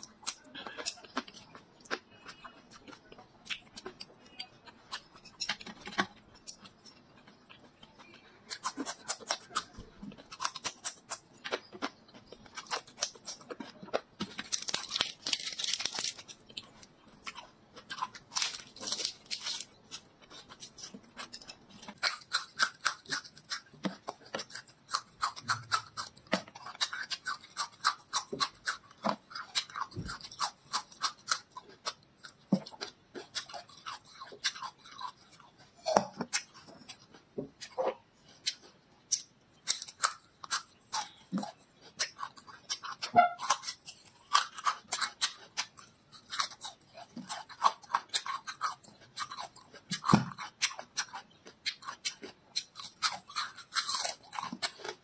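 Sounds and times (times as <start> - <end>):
chewing crisp lettuce: 0.0 - 55.0
lettuce leaves rustling: 14.5 - 16.3.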